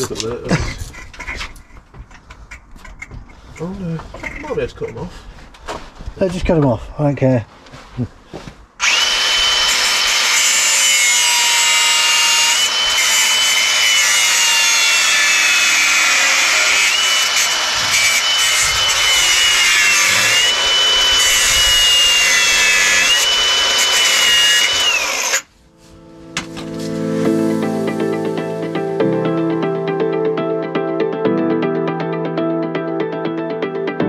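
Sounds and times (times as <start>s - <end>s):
angle grinder cutting metal: 8.8s - 25.5s.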